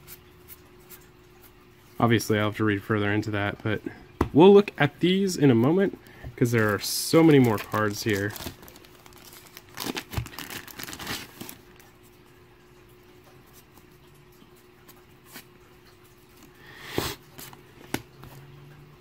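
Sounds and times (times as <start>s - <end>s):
plastic bag crinkling: 6.4s - 12.0s.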